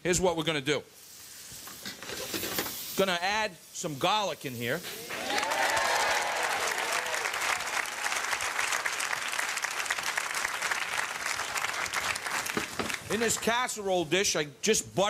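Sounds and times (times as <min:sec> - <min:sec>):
whoops and shouts: 0:05.0 - 0:08.1
audience clapping: 0:05.0 - 0:13.6.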